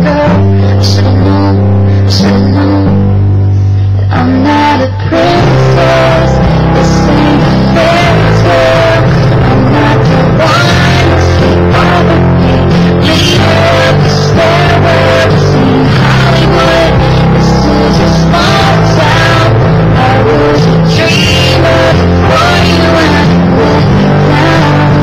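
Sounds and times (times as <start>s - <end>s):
rock song with singing and guitar: 0.0s - 25.0s.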